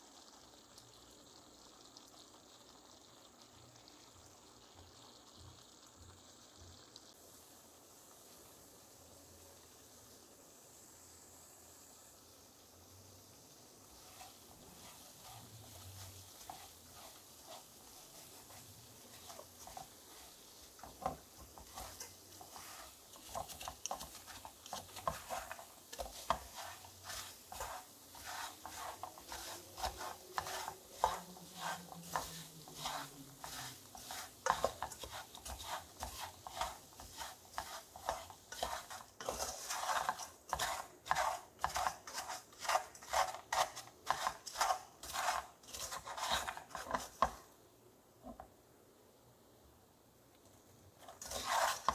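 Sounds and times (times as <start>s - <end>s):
wooden spatula scraping a pot: 13.9s - 47.6s, 51.0s - 51.9s.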